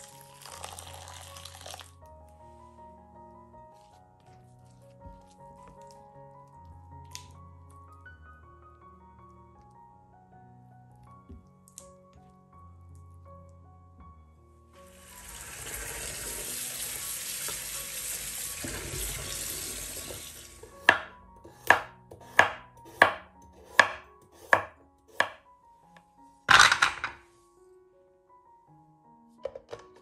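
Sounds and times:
tap water running into bowl: 0:00.0 - 0:01.9, 0:14.9 - 0:21.1
knife chopping on wooden board: 0:20.8 - 0:25.4.

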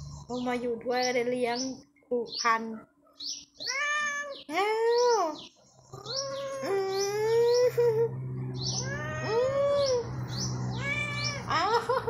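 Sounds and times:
cat meowing: 0:03.6 - 0:04.4, 0:08.8 - 0:09.9, 0:10.7 - 0:11.5.

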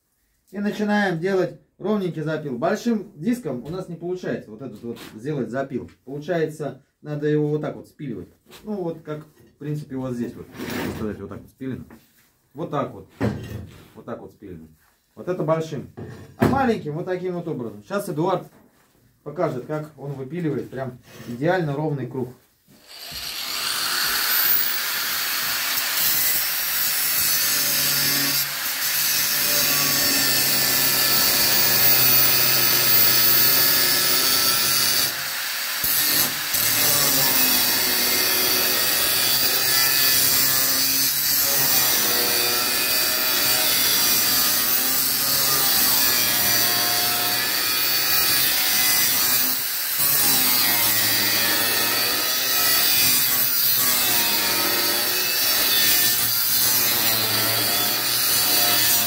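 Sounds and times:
angle grinder cutting sheet steel: 0:22.8 - 0:59.0.

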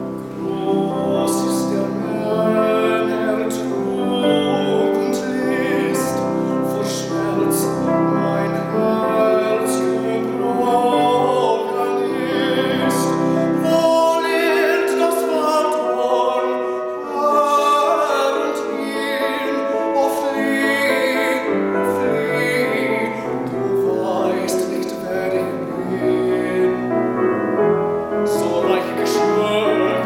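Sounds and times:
grand piano: 0:00.0 - 0:30.0
man singing operatically: 0:00.0 - 0:30.0.

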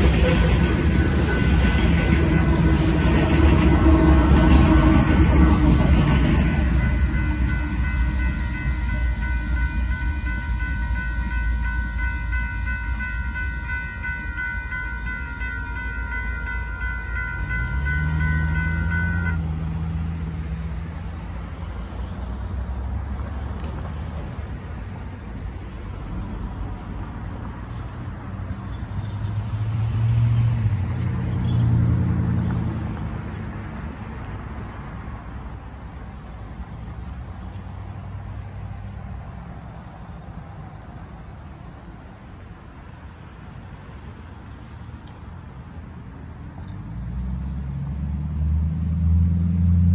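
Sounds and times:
railroad crossing bell ringing: 0:00.0 - 0:20.1
cars driving over crossing: 0:12.8 - 0:49.9.

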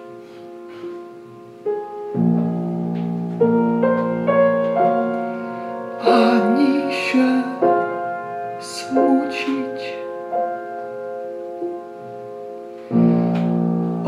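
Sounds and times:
slow piano accompaniment: 0:00.0 - 0:14.0
man singing: 0:06.0 - 0:07.9, 0:08.6 - 0:10.1.

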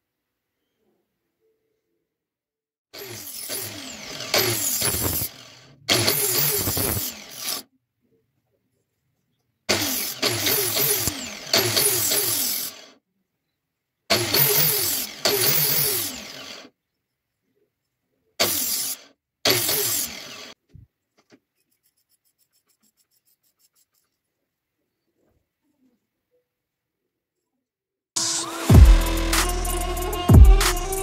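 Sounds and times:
angle grinder grinding blade: 0:03.0 - 0:07.7, 0:09.7 - 0:13.0, 0:14.1 - 0:16.7, 0:18.4 - 0:20.6, 0:28.2 - 0:31.0.

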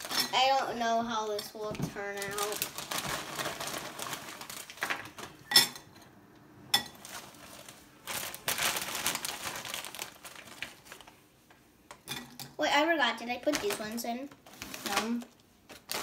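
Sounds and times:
chip bags crinkling: 0:00.0 - 0:00.8, 0:01.6 - 0:05.3, 0:07.0 - 0:11.3, 0:13.2 - 0:16.0.

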